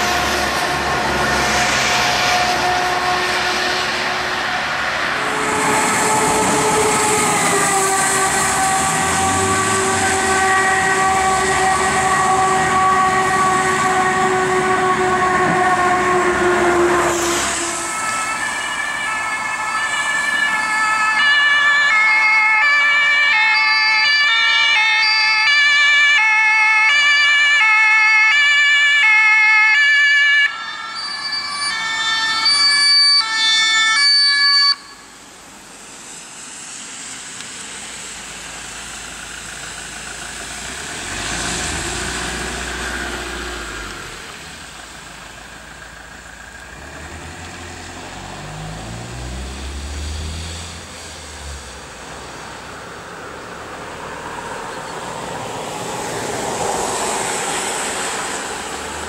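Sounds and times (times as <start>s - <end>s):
vehicle passing on wet road: 0.0s - 32.8s, 35.2s - 59.0s
two-tone siren: 0.0s - 35.2s.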